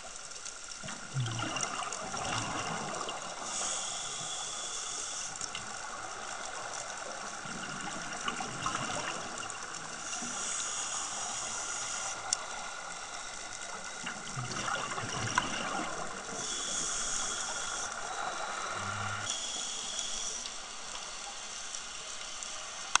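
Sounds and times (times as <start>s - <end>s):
bubbling exhaled air: 0.8s - 4.7s, 13.9s - 20.5s
regulator inhalation hiss: 3.3s - 7.1s, 9.9s - 14.0s, 16.1s - 23.0s.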